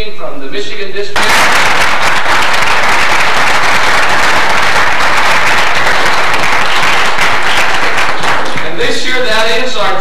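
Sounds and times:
audience applause: 1.2 - 8.8.

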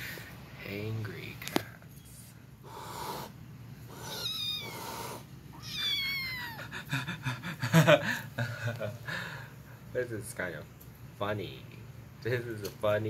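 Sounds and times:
cat meowing: 3.9 - 6.7.

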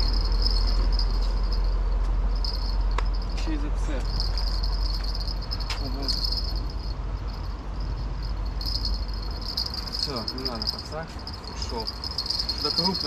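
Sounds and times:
insects chirping: 0.0 - 3.4, 4.0 - 13.0
low rumble: 0.0 - 12.8.

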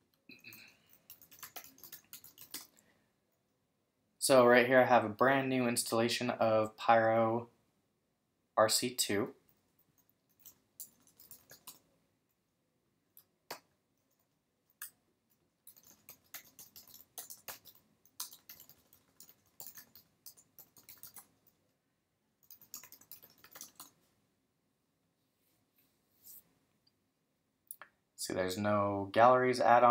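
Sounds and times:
typing on a keyboard: 0.3 - 2.8, 9.9 - 11.9, 15.6 - 21.6, 22.4 - 24.0.

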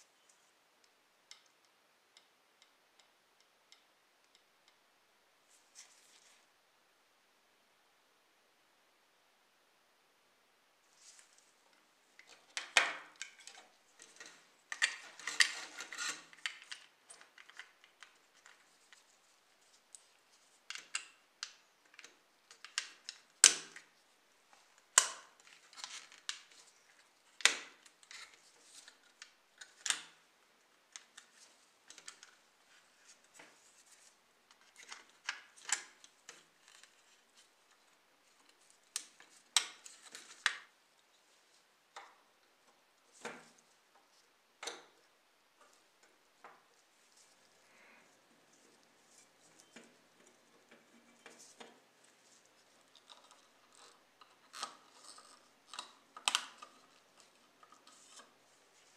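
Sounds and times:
plastic parts clicking: 52.8 - 58.3.

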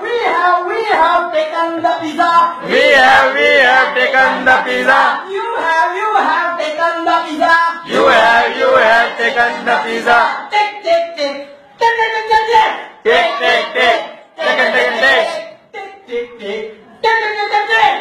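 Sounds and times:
man and woman singing: 0.0 - 18.0.

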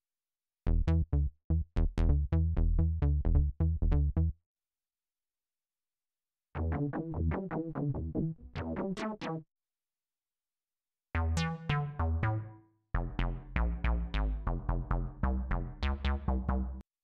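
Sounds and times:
short synthesizer bass notes: 0.7 - 4.3, 6.6 - 9.4
synthesizer bass line: 0.7 - 4.3, 6.6 - 9.4, 11.2 - 16.8.

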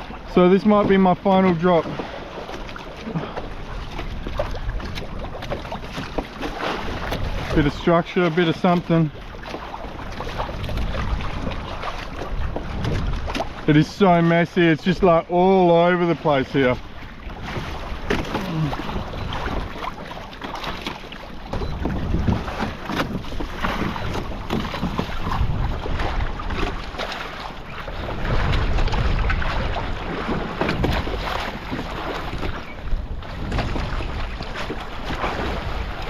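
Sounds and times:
waves splashing against kayak: 0.0 - 36.0
wind buffeting microphone: 3.4 - 8.1, 8.8 - 13.7, 21.4 - 36.0.

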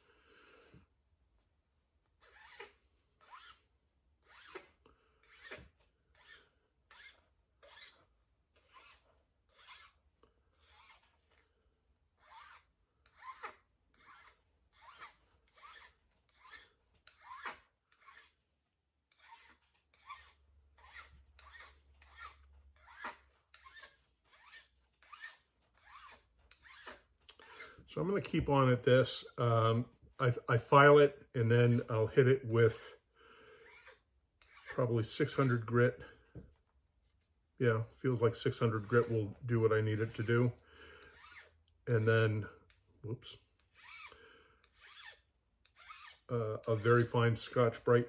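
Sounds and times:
hand file rasping on wood: 2.2 - 3.6, 4.2 - 8.0, 8.6 - 11.2, 12.2 - 18.4, 19.1 - 27.8, 33.6 - 35.7, 38.6 - 41.6, 43.6 - 47.6.

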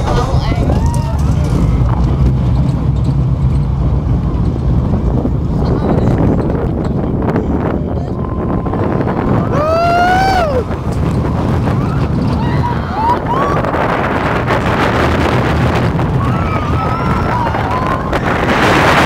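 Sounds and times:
roller coaster train rumbling: 0.0 - 19.0
wind rushing over microphone: 0.0 - 19.0
rider screaming: 16.2 - 18.3.

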